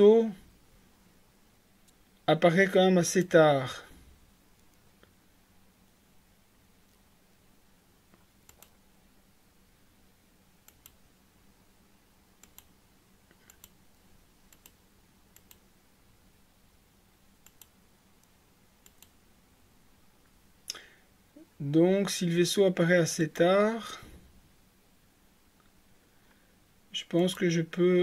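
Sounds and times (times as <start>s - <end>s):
low steady hum: 0.0s - 28.0s
computer mouse clicks: 8.1s - 8.8s, 10.6s - 11.0s, 12.4s - 12.7s, 13.3s - 13.8s, 14.5s - 15.6s, 17.4s - 19.2s.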